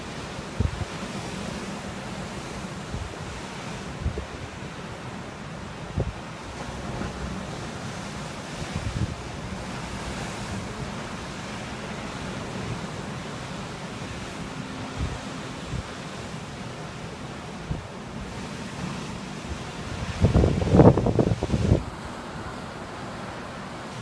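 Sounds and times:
waves washing on shore: 0.0s - 24.0s
wind thumps on microphone: 8.6s - 9.4s, 19.9s - 21.9s.

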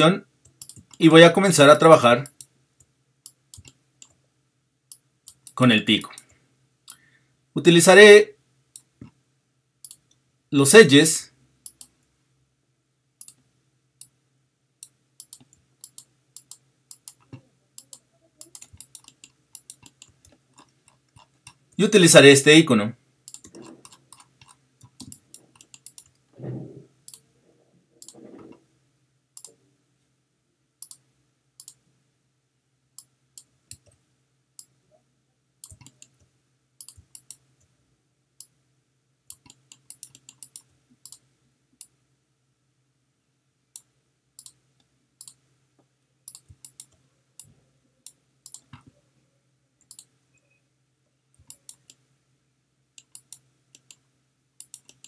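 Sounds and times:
faint steady hum: 0.0s - 55.0s
computer mouse clicks: 0.4s - 1.0s, 2.3s - 4.2s, 4.9s - 6.3s, 9.8s - 10.2s, 11.6s - 12.0s, 13.2s - 13.4s, 14.8s - 21.6s, 23.3s - 26.2s, 27.1s - 27.3s, 28.0s - 28.6s, 29.4s - 29.6s, 30.8s - 31.8s, 33.0s - 34.0s, 35.6s - 37.7s, 39.3s - 42.0s, 43.8s - 44.6s, 45.2s - 45.4s, 46.3s - 48.9s, 49.8s - 50.2s, 51.3s - 52.0s, 53.0s - 54.0s, 54.6s - 55.0s.

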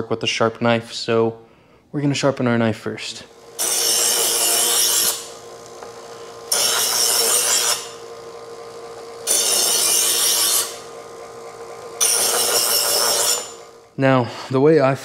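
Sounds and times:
electric knife sharpener humming: 3.1s - 14.0s
knife blade grinding: 3.5s - 13.9s.

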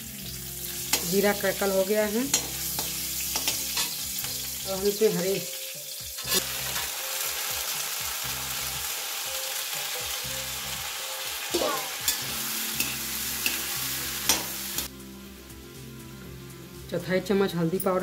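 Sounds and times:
peas sizzling in hot oil: 0.0s - 18.0s
spoon clinking against pan: 2.3s - 4.4s, 11.6s - 13.7s.

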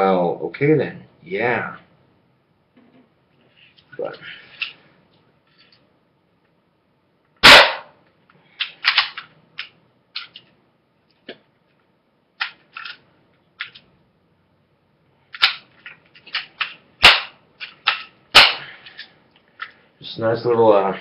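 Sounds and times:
gunshot crack: 7.4s - 8.0s, 17.0s - 17.4s, 18.3s - 18.7s.

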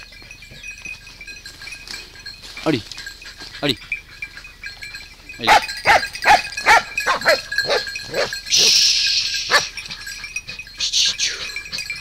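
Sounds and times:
dogs barking excitedly: 3.0s - 10.8s.

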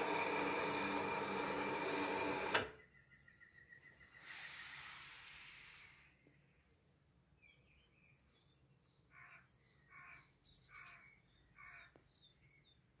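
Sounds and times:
birds chirping: 2.7s - 6.7s, 7.4s - 13.0s.

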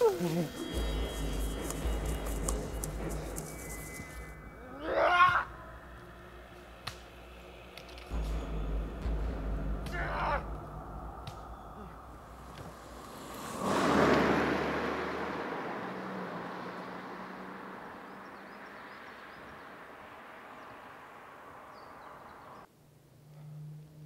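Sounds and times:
car passing by: 11.3s - 22.7s.

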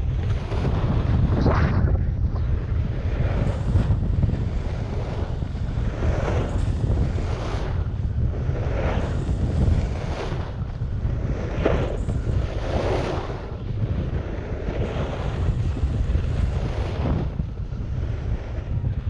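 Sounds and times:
wind buffeting microphone: 0.0s - 19.0s
snowboard edge scraping snow: 2.5s - 17.4s.

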